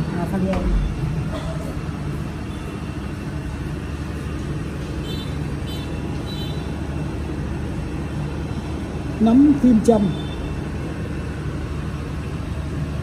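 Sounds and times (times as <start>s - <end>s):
low rumble and hiss: 0.0s - 13.0s.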